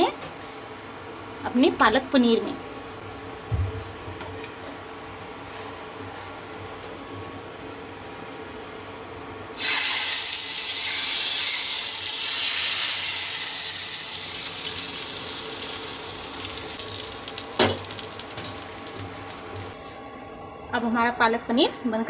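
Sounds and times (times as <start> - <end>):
hot oil sizzling: 9.5 - 20.0.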